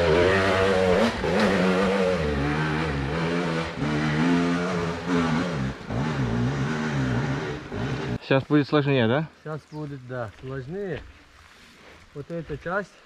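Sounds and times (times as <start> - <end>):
motorcycle engine revving: 0.0 - 8.2.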